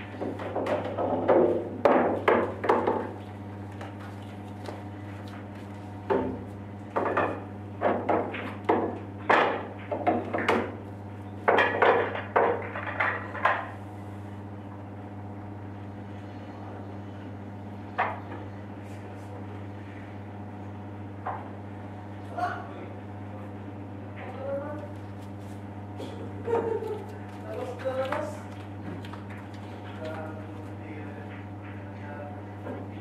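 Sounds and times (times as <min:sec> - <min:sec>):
pool balls clacking: 0:00.0 - 0:04.0, 0:06.0 - 0:13.8
steady low hum: 0:00.0 - 0:33.0.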